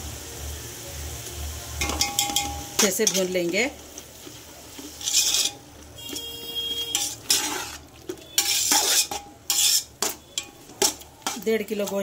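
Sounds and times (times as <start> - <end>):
faint frying sizzle: 0.0 - 12.0
metal skimmer scraping a pot: 5.0 - 5.6, 6.9 - 9.9.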